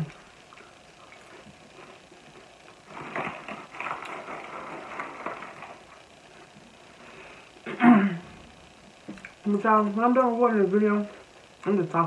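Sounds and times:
crackers being chewed: 0.1 - 7.1
snack bag crinkling: 0.4 - 6.6.

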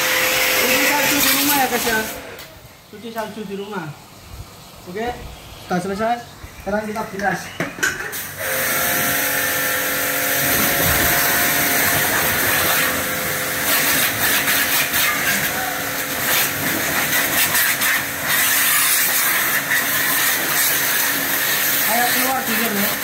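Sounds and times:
pressure washer motor humming: 0.0 - 2.6, 8.2 - 23.0
high-pressure water jet hissing: 0.0 - 6.2, 8.0 - 23.0.

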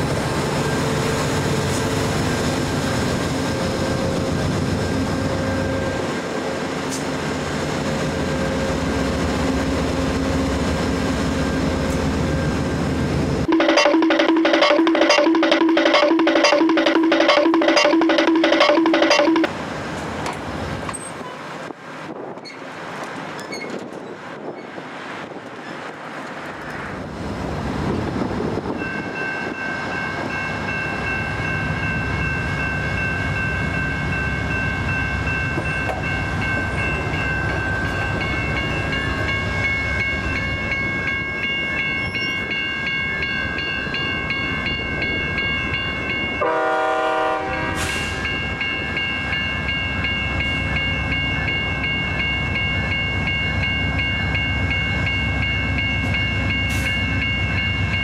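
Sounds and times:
railway crossing bells ringing: 13.4 - 19.6, 28.6 - 58.0
train horn blast: 46.4 - 48.2.

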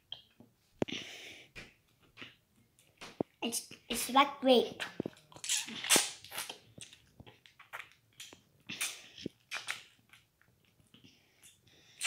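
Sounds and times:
child slurping jelly: 4.8 - 6.6.

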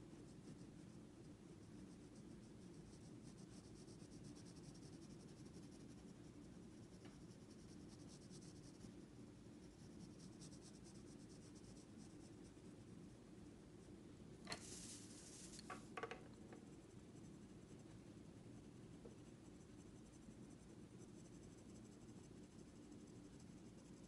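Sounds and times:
pencil scratching on paper: 1.9 - 8.9, 9.6 - 12.6.

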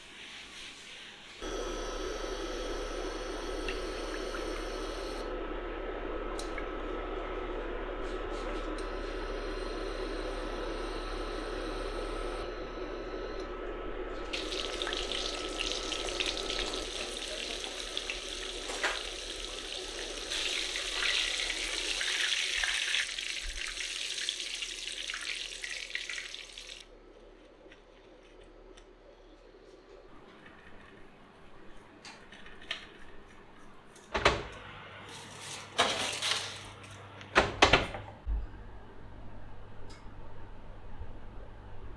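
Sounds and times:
food deep-frying in hot oil: 14.3 - 26.8.

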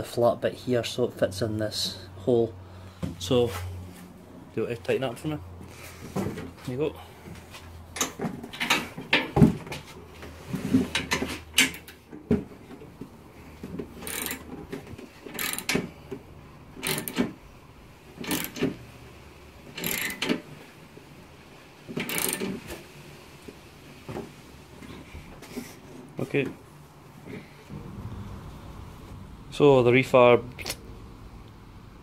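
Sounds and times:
socket ratchet clicking: 14.0 - 14.4, 15.3 - 15.8, 16.8 - 17.2, 18.2 - 18.7, 19.8 - 20.4, 22.0 - 22.5.

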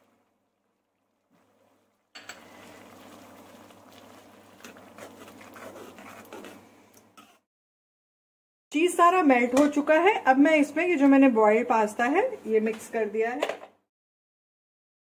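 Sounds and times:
sauce sloshing: 2.4 - 7.4
metal ladle scraping a pan: 4.6 - 7.4.

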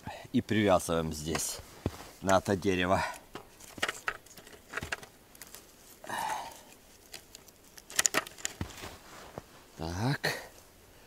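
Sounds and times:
strap rustling and scraping on bark: 1.0 - 9.8.

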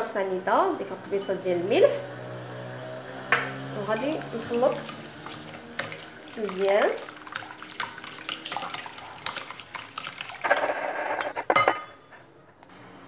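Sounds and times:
whisk clicking against glass bowl: 4.0 - 10.4.

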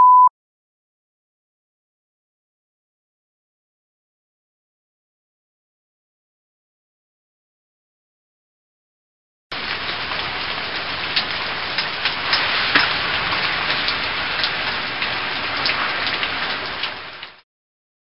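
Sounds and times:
rain on paving stones: 9.5 - 17.4
individual raindrop hits: 9.6 - 17.4.

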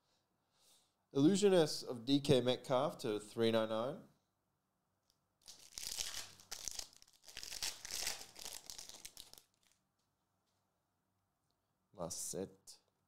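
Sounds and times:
foil wrapper tearing and crinkling: 5.4 - 9.8.

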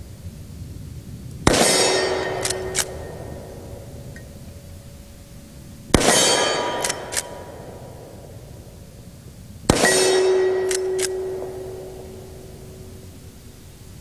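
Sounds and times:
rifle shots: 1.4 - 3.7, 5.9 - 8.2, 9.7 - 12.6
rifle lever metallic clicks: 2.4 - 2.9, 6.8 - 7.4, 10.6 - 11.2.

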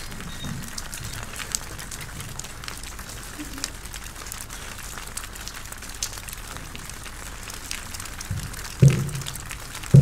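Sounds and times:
light crackles and ticks: 0.0 - 10.0
steady hiss: 6.9 - 10.0.

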